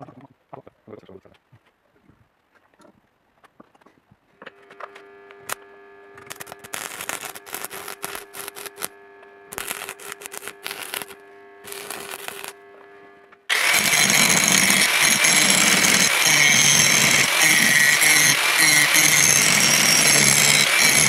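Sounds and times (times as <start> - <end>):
angle grinder grinding: 4.8 - 21.0
welding machine hum: 4.9 - 21.0
welding arc crackling: 6.2 - 12.8, 13.5 - 21.0.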